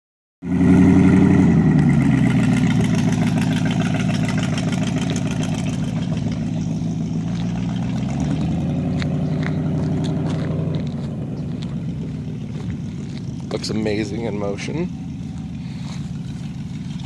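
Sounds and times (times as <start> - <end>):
car engine driving away: 0.4 - 17.0.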